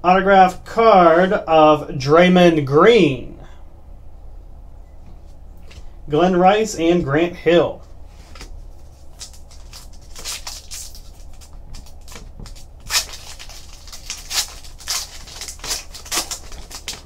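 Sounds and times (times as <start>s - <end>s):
foil wrapper crinkling: 8.1s - 17.0s.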